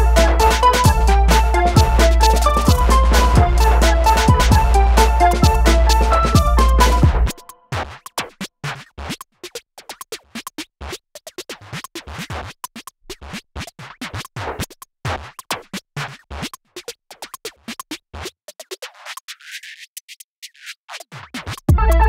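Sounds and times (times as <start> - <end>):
electronic music with drum-machine beat: 0.0 - 7.9, 20.9 - 22.0.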